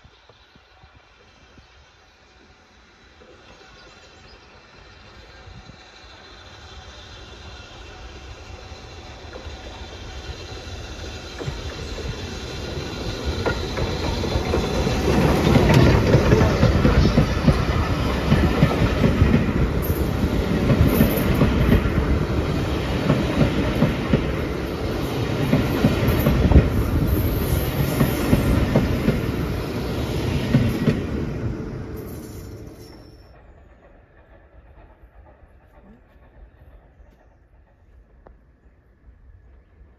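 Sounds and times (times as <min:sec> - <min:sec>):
steam locomotive passing: 0:00.0 - 0:39.9
wheels clacking over rail joints: 0:10.5 - 0:38.2.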